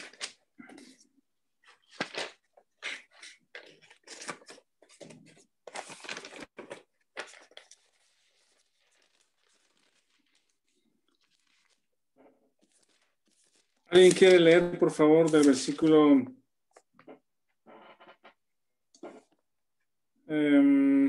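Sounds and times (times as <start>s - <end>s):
paper pages rustling: 0.0s - 16.0s.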